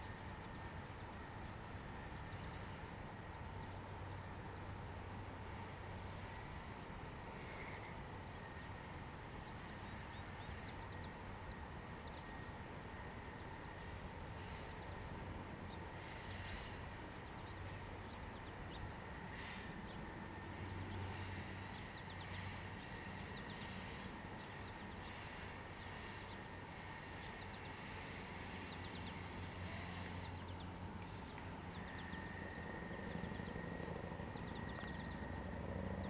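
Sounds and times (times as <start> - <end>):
small birds chirping: 5.6 - 12.4, 14.5 - 36.0.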